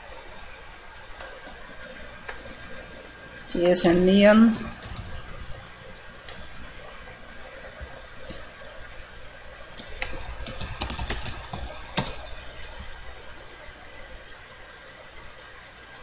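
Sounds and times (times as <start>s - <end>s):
low steady hiss: 0.0s - 16.0s
keyboard keystroke clicks: 4.5s - 5.2s, 9.8s - 12.8s.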